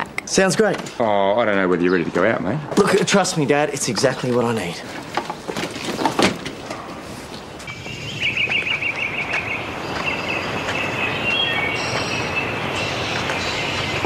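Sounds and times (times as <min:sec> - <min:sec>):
bird trilling: 0:07.7 - 0:14.0.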